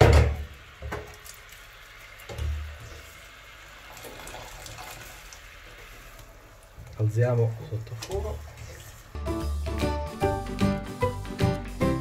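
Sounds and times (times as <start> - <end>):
water splashing into pot: 3.7 - 6.7.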